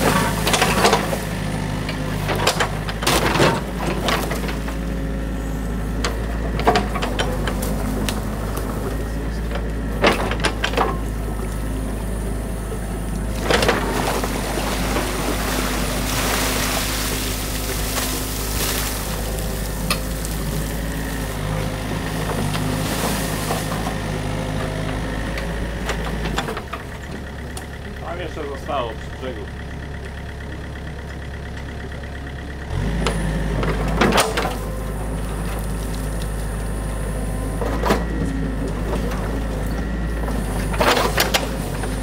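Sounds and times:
excavator diesel engine running: 0:00.0 - 0:42.0
water splashing and rushing: 0:13.5 - 0:21.5, 0:22.4 - 0:24.2.

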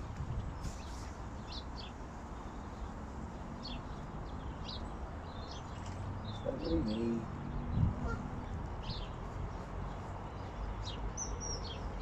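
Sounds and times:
wind rumbling on microphone: 0:00.0 - 0:01.2, 0:05.4 - 0:09.6.

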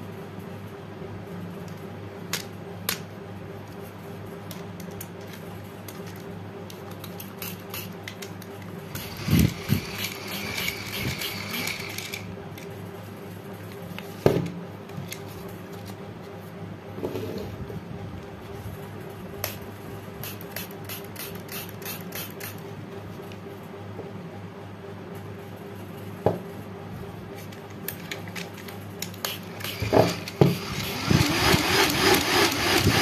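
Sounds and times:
mini fan motor whirring: 0:08.8 - 0:12.4, 0:29.2 - 0:33.0.

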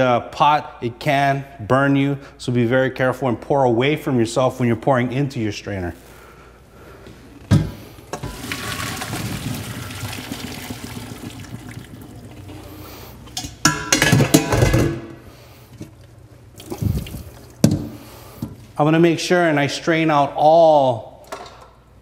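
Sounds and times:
water pouring into a strainer: 0:08.2 - 0:12.7
pot knocks and clatters: 0:13.5 - 0:15.1.

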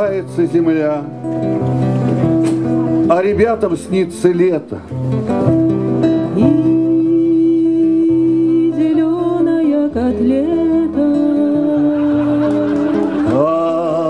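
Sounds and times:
acoustic guitar: 0:00.0 - 0:14.0
woman singing: 0:06.2 - 0:14.0.

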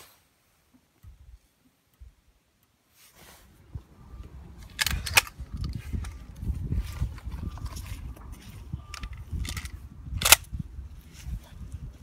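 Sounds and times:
wind rumbling on microphone: 0:03.4 - 0:12.0.

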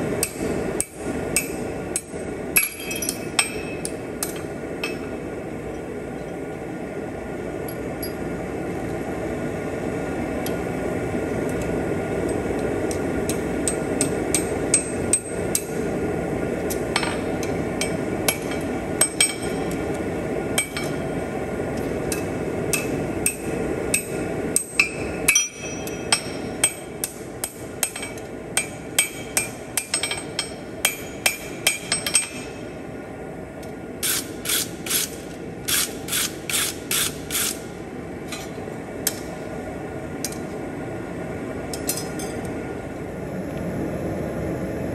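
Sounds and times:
hammer striking steel on anvil: 0:00.2 - 0:05.1, 0:22.1 - 0:32.6.

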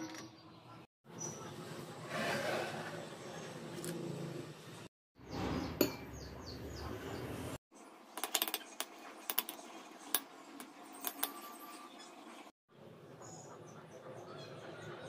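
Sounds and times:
metal tongs clinking on glass bowl: 0:11.0 - 0:11.7.

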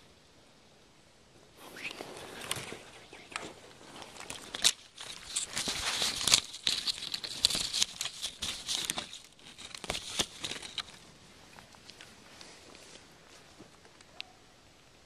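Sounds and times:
dry twigs rustling and snapping: 0:01.8 - 0:13.0.

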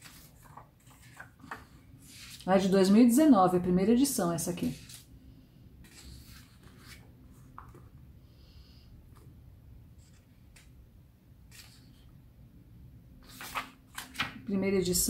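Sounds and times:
paper pages rustling: 0:00.0 - 0:02.8, 0:04.6 - 0:05.1, 0:05.8 - 0:08.0, 0:11.5 - 0:12.1, 0:13.2 - 0:14.5.

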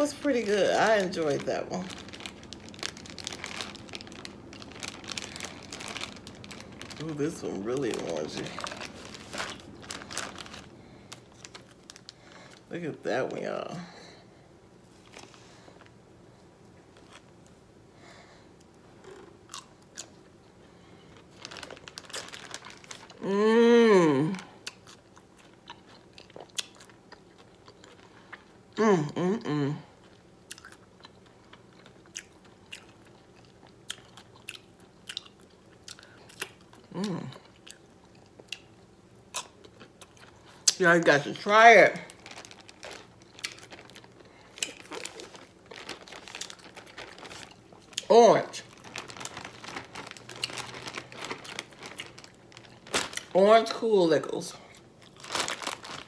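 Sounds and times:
plastic bags crinkling: 0:00.0 - 0:13.8, 0:21.0 - 0:23.4, 0:39.9 - 0:56.0
crunching and chewing pickle: 0:00.1 - 0:12.7, 0:18.6 - 0:20.3, 0:21.0 - 0:23.2, 0:24.4 - 0:28.7, 0:30.0 - 0:40.8, 0:42.0 - 0:53.4, 0:54.6 - 0:56.0.

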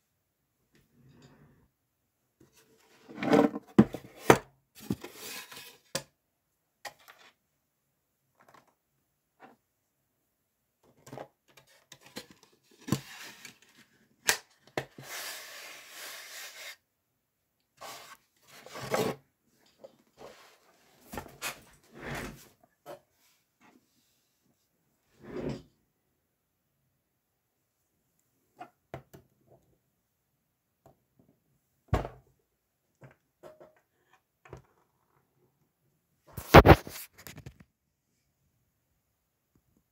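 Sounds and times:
rubbing and scraping of toys: 0:02.4 - 0:06.0, 0:06.9 - 0:07.4, 0:10.9 - 0:16.9, 0:17.8 - 0:24.0, 0:36.3 - 0:37.6.

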